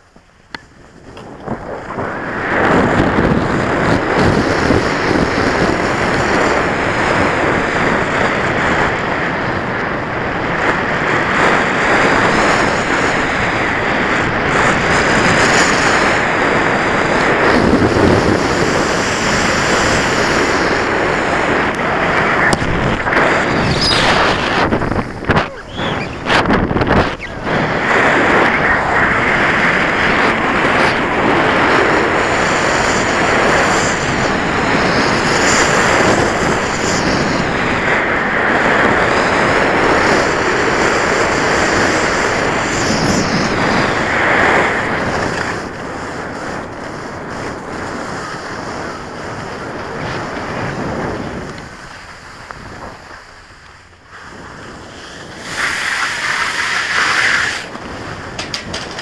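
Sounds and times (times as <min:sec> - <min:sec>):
wind buffeting microphone: 0:00.0 - 0:59.0
skis hissing over snow: 0:41.2 - 0:58.2.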